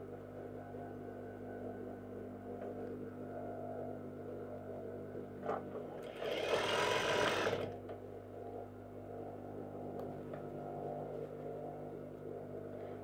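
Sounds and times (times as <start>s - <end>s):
steady low hum: 0.0s - 6.2s, 7.2s - 13.0s
sewing machine stitching: 6.0s - 7.8s.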